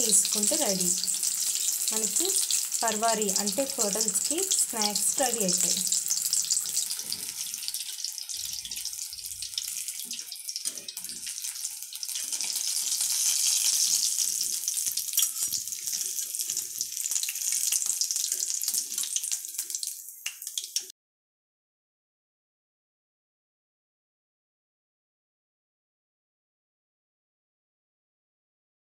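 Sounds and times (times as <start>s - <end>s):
hot oil sizzling and crackling: 0.0s - 20.9s.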